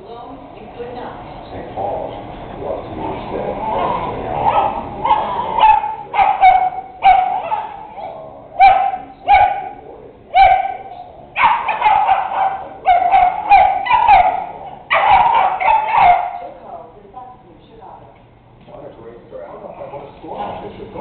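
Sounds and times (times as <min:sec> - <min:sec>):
dogs barking and yipping: 0:03.6 - 0:16.6.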